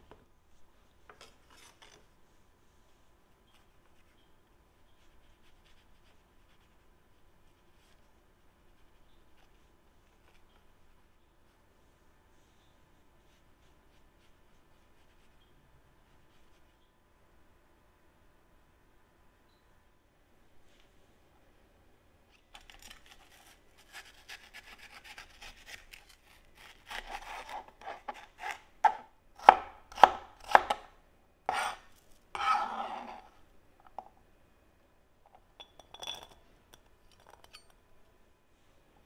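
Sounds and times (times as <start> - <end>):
knife cutting on a cutting board: 22.7 - 30.9, 31.5 - 33.3.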